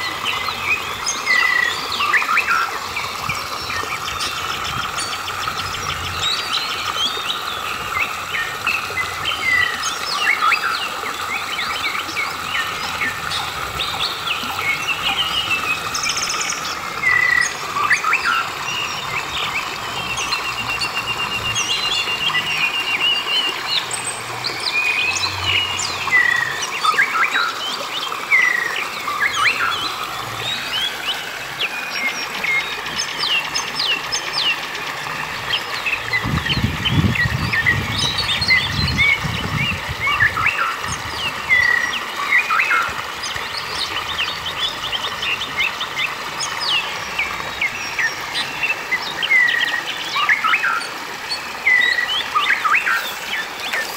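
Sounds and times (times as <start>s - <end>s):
birds chirping and calling: 0.0s - 53.9s
stream water over rocks: 0.0s - 53.9s.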